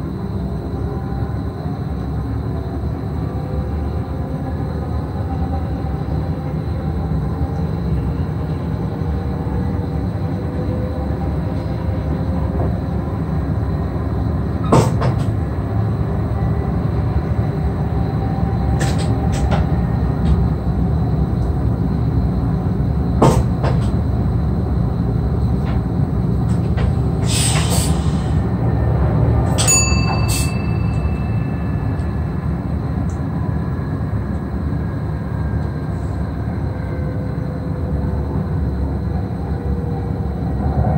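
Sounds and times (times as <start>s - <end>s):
train wheels rumbling on rail: 0.0s - 40.9s
brief hiss: 27.2s - 28.4s.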